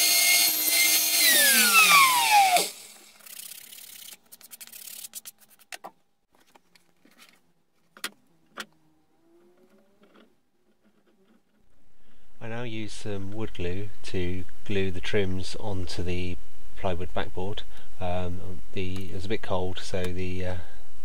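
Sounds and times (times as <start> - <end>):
chop saw spinning down: 0.0 - 3.3.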